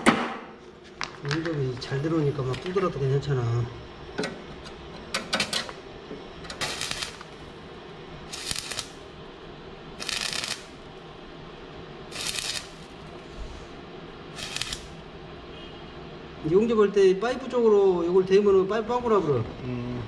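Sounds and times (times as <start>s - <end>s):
welding arc crackling: 6.5s - 7.6s, 8.2s - 9.2s, 10.0s - 10.9s, 12.1s - 13.2s, 14.3s - 15.0s.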